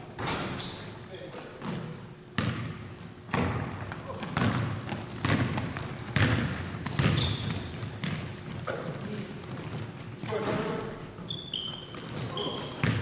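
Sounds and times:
sneaker squeaks: 0:00.0 - 0:02.6, 0:05.2 - 0:13.0
basketball bouncing on wooden floor: 0:01.6 - 0:13.0.

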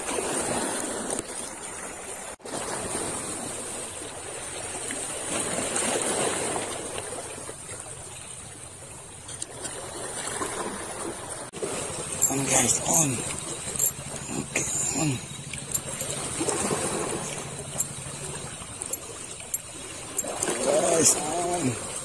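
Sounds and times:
small waves lapping on rocks: 0:00.0 - 0:22.0.

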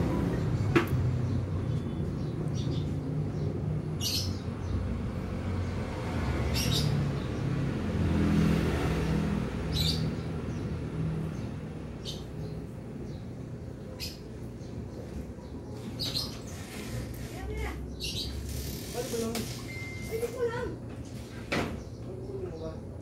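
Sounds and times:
bird chirping: 0:06.2 - 0:07.6, 0:09.6 - 0:20.4.

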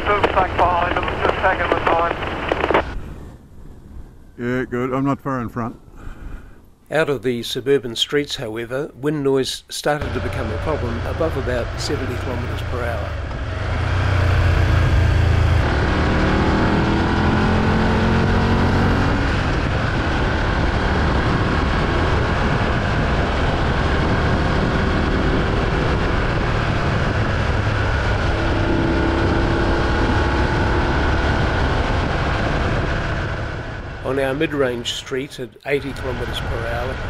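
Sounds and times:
motorcycle engine rising in pitch: 0:10.0 - 0:34.8
wind rushing in helmet: 0:19.0 - 0:34.0.

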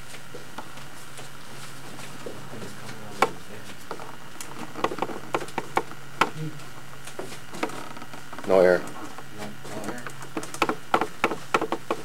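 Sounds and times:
steady low hum: 0:00.0 - 0:12.0
small clicks and knocks: 0:03.2 - 0:06.4, 0:07.0 - 0:12.0.

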